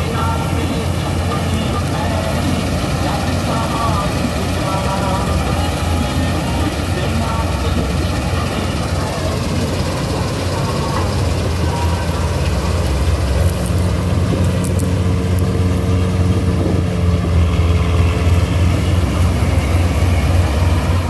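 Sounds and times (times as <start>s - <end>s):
faint steady whine: 0.0s - 15.7s
combine harvester drone: 0.0s - 21.0s.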